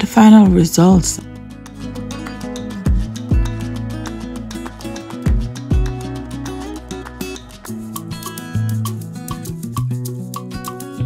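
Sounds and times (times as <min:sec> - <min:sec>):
plucked-string melody over a beat: 0:00.2 - 0:11.0.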